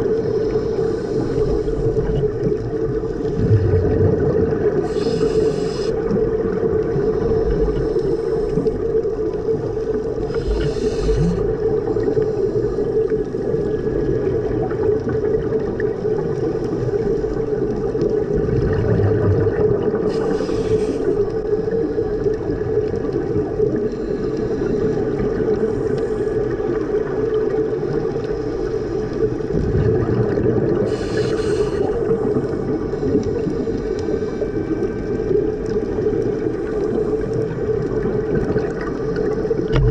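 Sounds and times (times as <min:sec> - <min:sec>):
exhaled air bubbling: 0:00.0 - 0:39.9
regulator inhalation hiss: 0:00.5 - 0:02.0, 0:04.8 - 0:06.0, 0:10.3 - 0:11.4, 0:20.0 - 0:22.2, 0:30.9 - 0:32.2.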